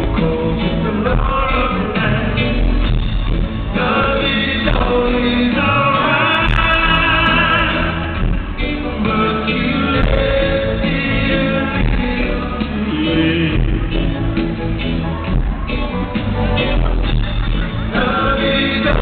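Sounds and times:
man singing into a microphone: 0.0 - 2.8, 3.7 - 14.1, 17.9 - 19.0
live band playing: 0.0 - 19.0.

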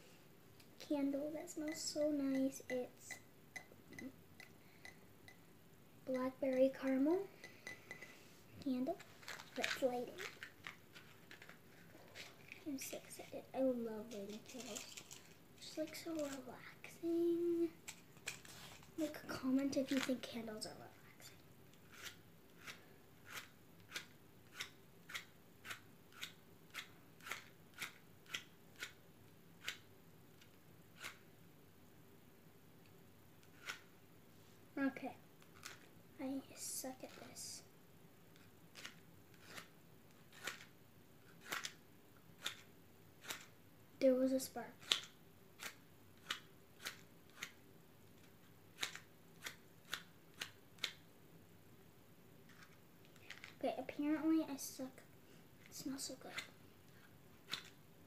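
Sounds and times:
match scratching on matchbox: 21.8 - 28.9, 31.0 - 31.2, 33.5 - 33.8, 38.7 - 39.7, 40.3 - 40.7, 41.4 - 41.8, 43.2 - 43.5.

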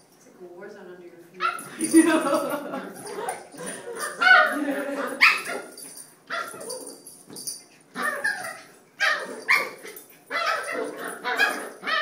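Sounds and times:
puppies barking and yipping: 3.0 - 12.0.

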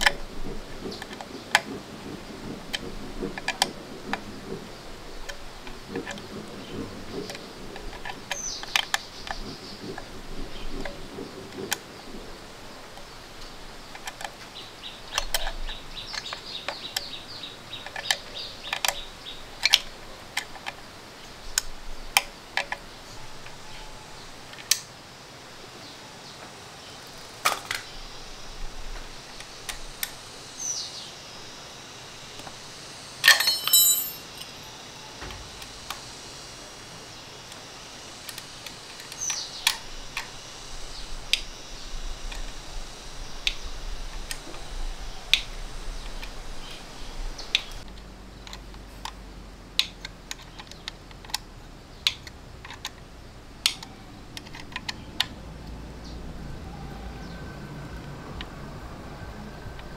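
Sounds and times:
ringing metal clatter: 33.3 - 34.7.

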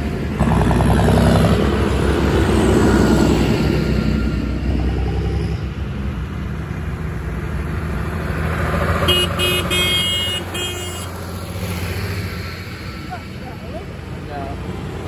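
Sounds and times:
diesel tractor engines running: 0.0 - 15.0
horn tooting: 9.0 - 11.2.

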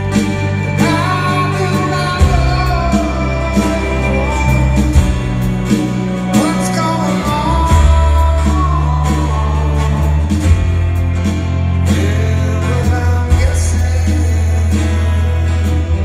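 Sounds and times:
live rock band ballad: 0.0 - 16.0
man singing lead vocal: 0.0 - 16.0.

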